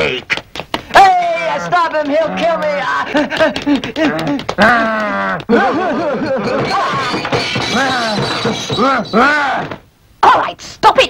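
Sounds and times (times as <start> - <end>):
man laughing: 3.1 - 6.8.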